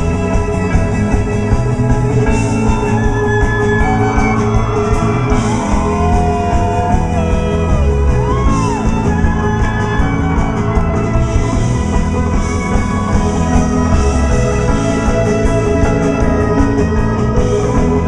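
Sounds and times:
drums with ticking cymbals: 0.0s - 18.0s
electric guitars: 0.0s - 18.0s
long sliding high guitar notes: 0.0s - 18.0s.

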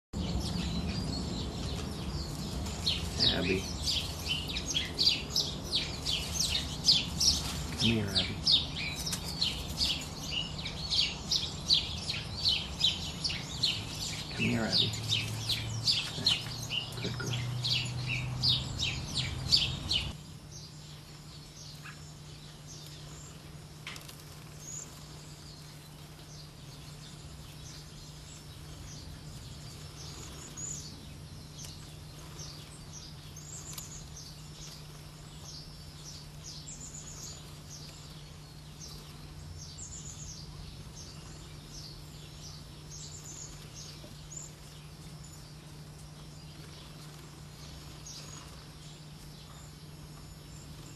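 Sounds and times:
high-pitched bird calls: 0.2s - 20.2s
rapid bird chirping: 0.2s - 50.9s
steady low hum: 0.2s - 50.9s.

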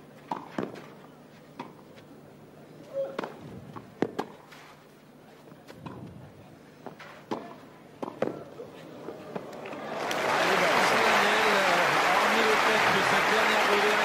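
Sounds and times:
faint crowd noise: 5.0s - 14.0s.

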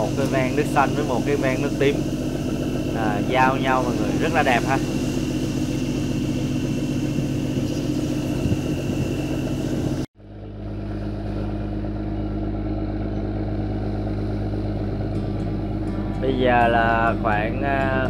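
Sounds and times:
water hissing: 0.0s - 9.5s
wind: 0.0s - 16.4s
boat engine humming: 0.0s - 18.0s.

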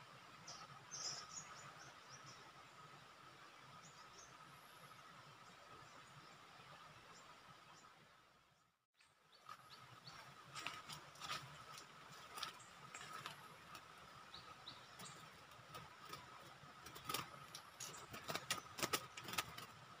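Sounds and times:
bird chirps: 0.5s - 2.4s
rustling and knocks of bird cage: 15.6s - 19.8s.

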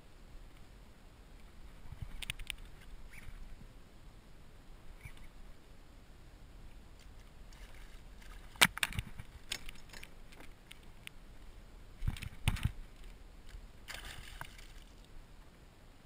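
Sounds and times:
fishing gear clicking and knocking: 8.5s - 10.9s.

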